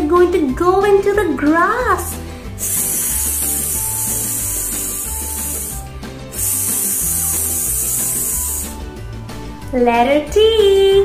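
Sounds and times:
background music with low notes: 0.0 - 11.0
woman making hissing sounds: 2.0 - 8.8.

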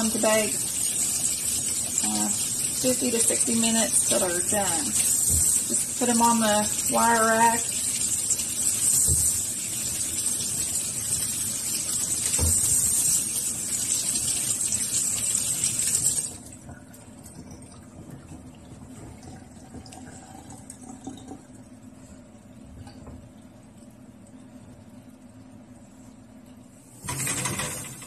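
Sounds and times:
faucet running into sink: 0.0 - 21.7.

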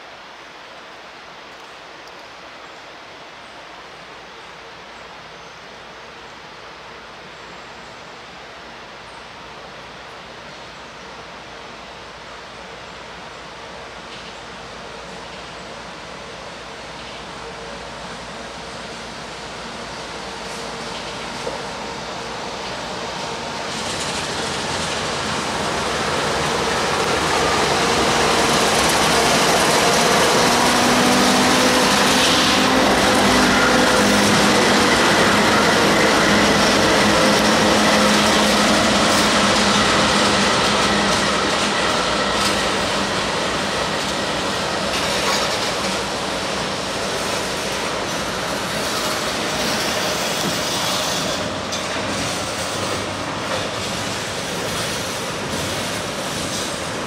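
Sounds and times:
locomotive engines humming: 8.3 - 57.0
steel wheels rolling on rails: 22.6 - 57.0.

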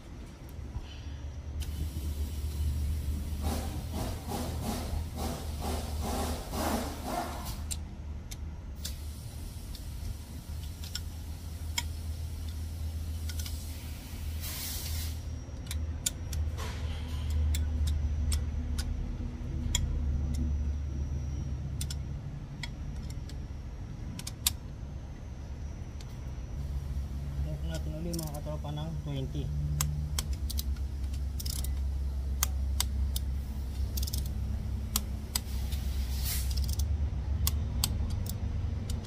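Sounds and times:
steady low hum: 0.0 - 39.0
brief hiss: 14.4 - 15.2
socket wrench metallic clicks: 29.7 - 35.8, 36.4 - 39.0.

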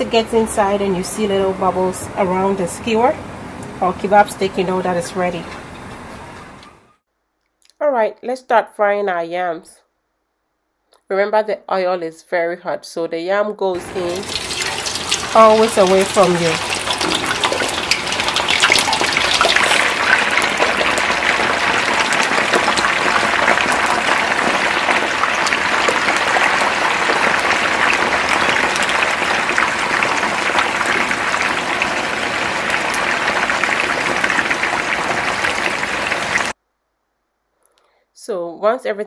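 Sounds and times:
deep-frying sizzle with pops: 13.8 - 36.6.

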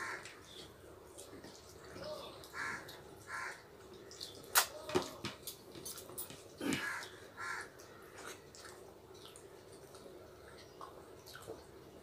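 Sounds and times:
mouth clicks and smacks eating: 0.2 - 4.8, 5.4 - 11.8.

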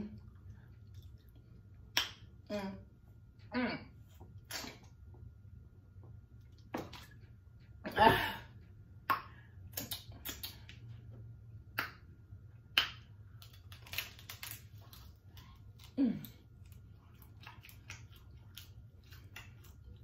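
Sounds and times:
chewing with wet smacks: 0.1 - 2.4, 9.0 - 20.0
meat tearing from bone: 13.4 - 15.9.

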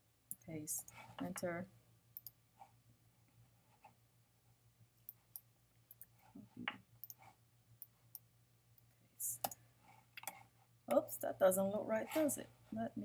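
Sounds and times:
computer mouse and keyboard clicks: 9.4 - 10.4.

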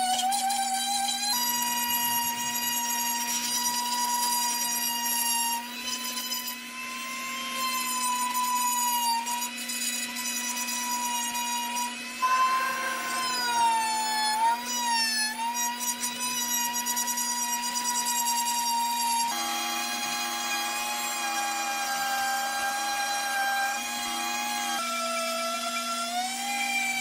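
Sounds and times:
rotary tool grinding wood: 0.0 - 27.0.

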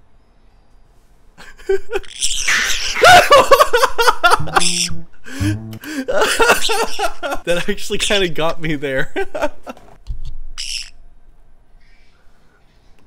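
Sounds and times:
man laughing: 1.4 - 2.1, 2.9 - 7.7, 9.0 - 9.8
parrot screeching: 2.0 - 3.2, 6.5 - 7.2, 10.6 - 11.0.

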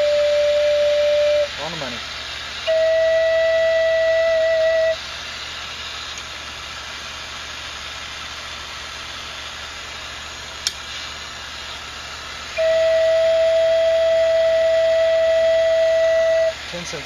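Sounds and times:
flute holding a steady note: 0.0 - 5.2, 12.4 - 17.0
sharp click: 10.6 - 10.8.

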